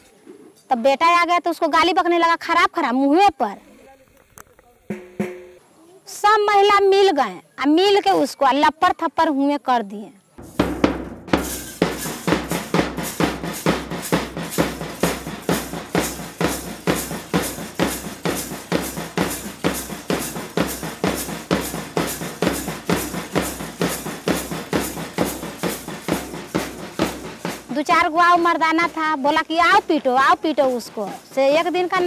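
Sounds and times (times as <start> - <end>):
bass drum thumps: 4.9 - 5.6, 10.4 - 29.0
marching side drums: 4.9 - 5.6, 10.4 - 32.0.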